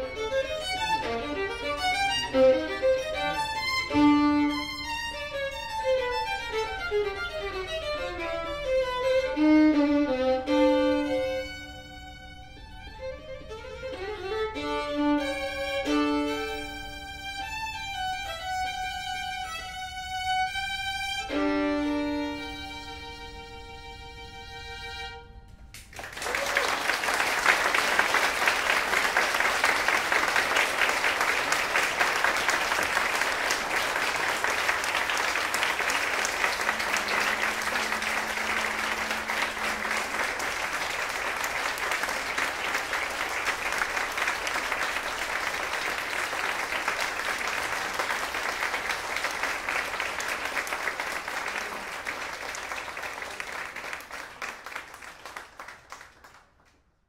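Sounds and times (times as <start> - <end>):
audience applauding: 0.0 - 4.0, 25.7 - 56.8
violin playing: 0.0 - 25.7, 28.3 - 51.2.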